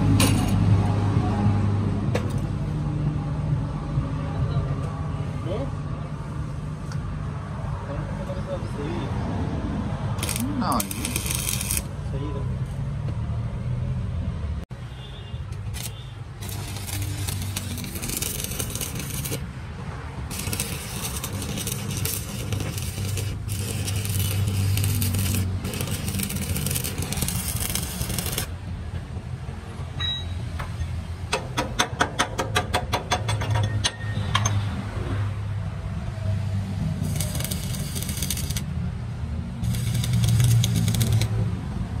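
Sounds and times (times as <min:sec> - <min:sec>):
welding arc crackling and sizzling: 0:10.2 - 0:12.0, 0:15.7 - 0:19.5, 0:20.3 - 0:28.6, 0:37.0 - 0:38.7, 0:39.6 - 0:41.4
sharp ticks: 0:39.7 - 0:41.3.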